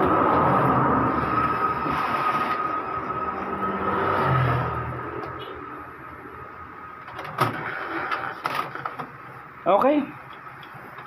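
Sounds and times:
printer mechanism running: 0.0 - 3.6, 7.0 - 9.4
low hum: 0.0 - 7.0.

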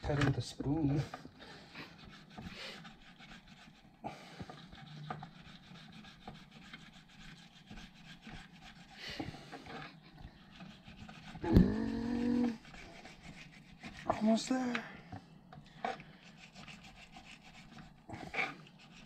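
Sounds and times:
knife scraping fish on wooden board: 1.9 - 14.2, 15.8 - 19.0.

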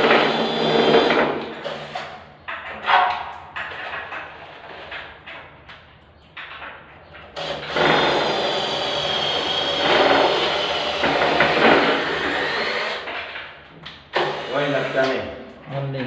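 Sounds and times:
cordless drill whining: 7.4 - 13.2, 14.1 - 15.2.

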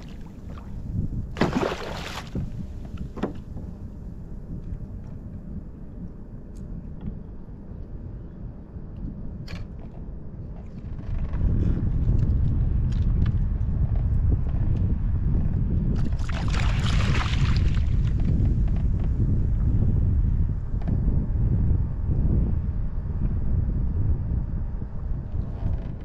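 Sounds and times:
water lapping at kayak hull: 0.0 - 3.4, 16.0 - 18.2
wind buffeting microphone: 0.0 - 26.0.

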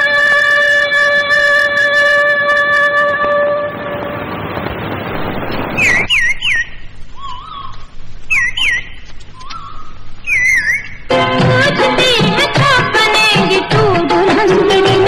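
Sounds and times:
swooping whistled notes: 3.7 - 7.7, 8.3 - 11.0
music with singing: 11.1 - 15.0.

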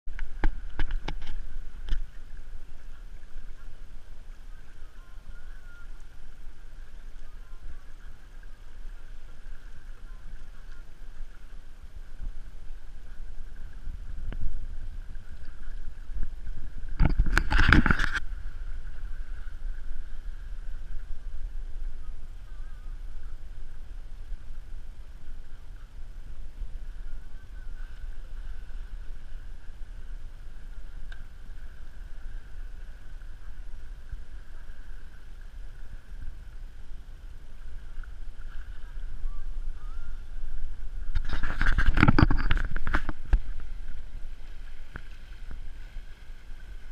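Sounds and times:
water rushing along hull: 0.1 - 46.9
wind buffeting microphone: 0.2 - 46.9.

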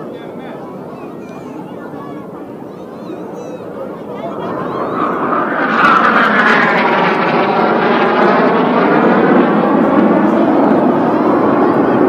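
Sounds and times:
jet fighters roaring past: 0.0 - 12.0.

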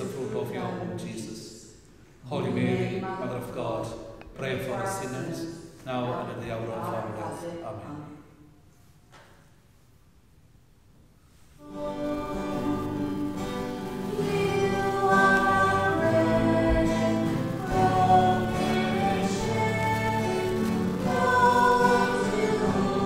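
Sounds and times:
choir singing a hymn: 0.0 - 1.4, 2.2 - 7.7, 11.6 - 23.0.

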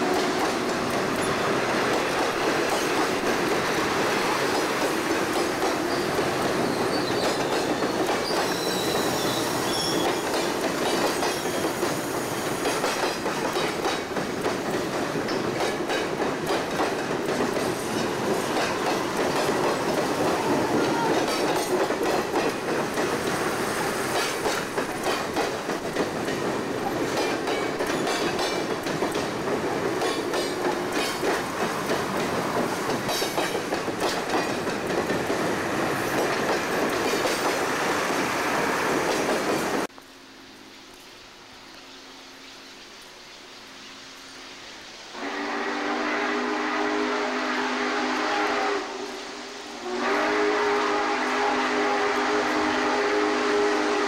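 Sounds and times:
wheels clicking over rail joints: 0.0 - 38.2
train rolling over bridge: 0.0 - 40.0
high-pitched wheel squeal: 8.2 - 10.2.

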